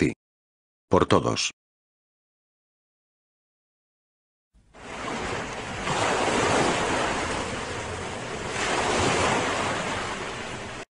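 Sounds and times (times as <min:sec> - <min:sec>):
small waves breaking on sandy beach: 0:04.7 - 0:10.8.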